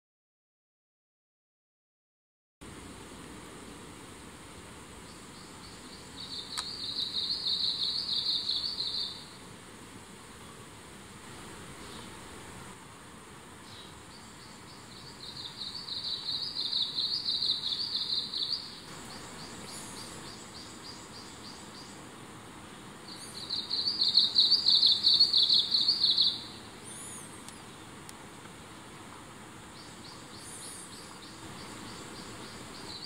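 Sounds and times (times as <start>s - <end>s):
warbler singing: 5.0s - 9.4s, 13.6s - 22.1s, 22.7s - 28.0s, 29.6s - 33.0s.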